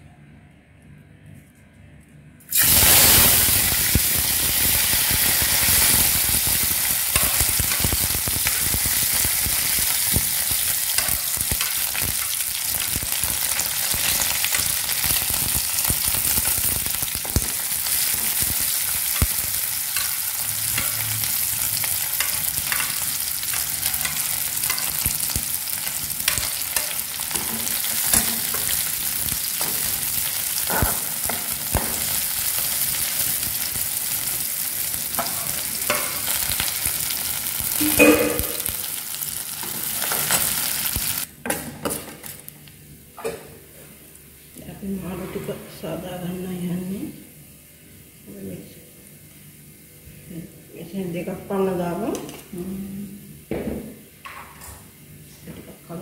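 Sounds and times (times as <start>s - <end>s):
hot oil sizzling in a wok: 2.5s - 41.3s.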